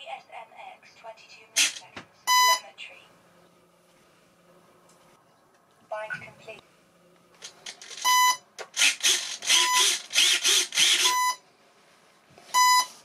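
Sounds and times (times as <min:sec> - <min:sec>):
short electronic beeps: 0:02.3 - 0:02.7, 0:08.0 - 0:08.4, 0:11.1 - 0:11.4, 0:12.6 - 0:13.0.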